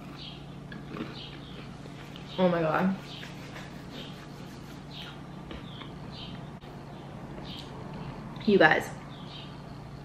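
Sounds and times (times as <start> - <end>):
person chewing crunchy snack: 0.0 - 1.7
steady low hum: 0.0 - 10.0.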